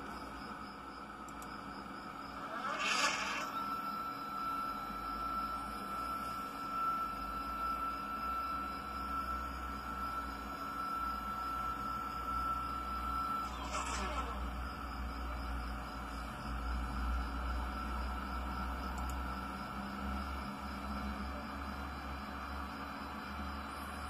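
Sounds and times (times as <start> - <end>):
stepper motors whining: 2.2 - 15.4
short burst of noise: 2.5 - 3.6.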